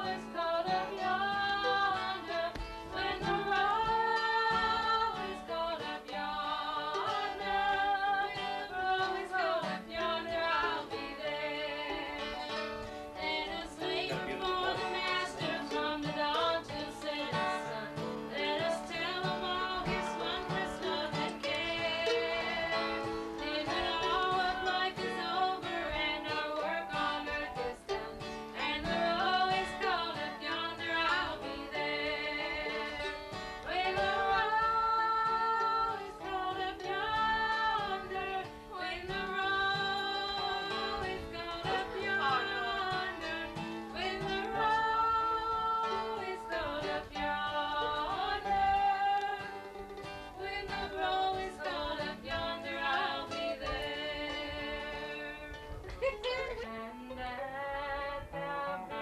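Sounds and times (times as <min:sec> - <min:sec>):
acoustic guitar: 0:00.0 - 0:59.0
person singing long notes: 0:00.0 - 0:59.0
plucked string instrument: 0:00.0 - 0:59.0.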